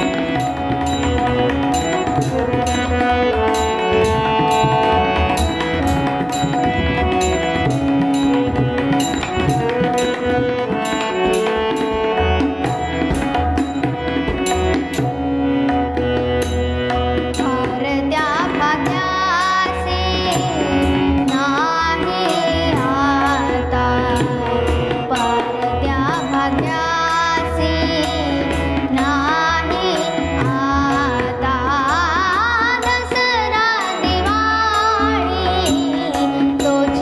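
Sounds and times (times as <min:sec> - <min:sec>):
harmonium: 0:00.0 - 0:37.0
tabla strokes: 0:00.0 - 0:37.0
girl singing: 0:17.4 - 0:37.0.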